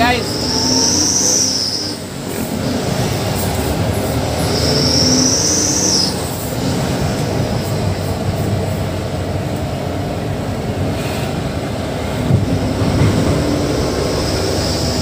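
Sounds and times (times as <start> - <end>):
truck engine and road rumble: 0.0 - 15.0
high thin squeal: 0.3 - 2.0.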